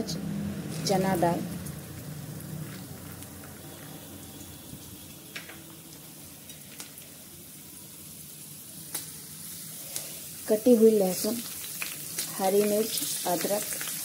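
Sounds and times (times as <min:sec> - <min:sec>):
oil sizzling in a pan: 0:00.0 - 0:14.0
small pops of frying: 0:00.7 - 0:14.0.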